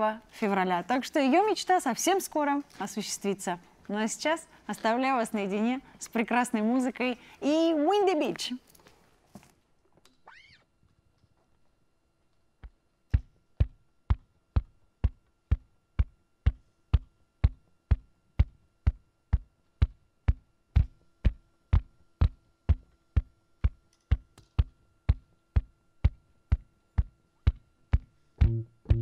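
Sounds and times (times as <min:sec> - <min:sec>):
faint hum: 0:00.0 - 0:29.0
percussive beat of sharp knocks: 0:13.1 - 0:29.0.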